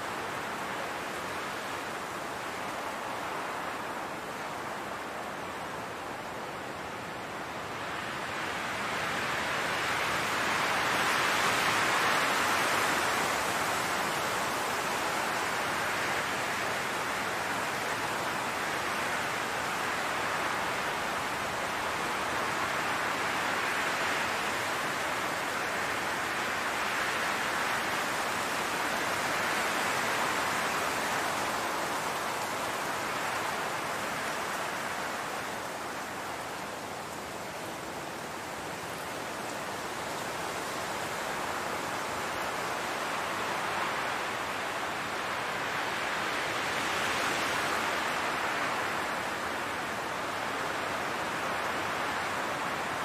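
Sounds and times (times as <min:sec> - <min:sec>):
wind blowing through grass: 0:00.0 - 0:53.0.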